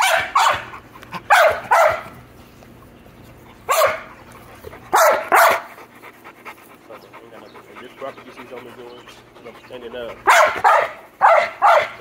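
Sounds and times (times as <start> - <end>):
dog barking: 0.0 - 2.1, 3.7 - 4.1, 4.9 - 5.8, 10.2 - 12.0.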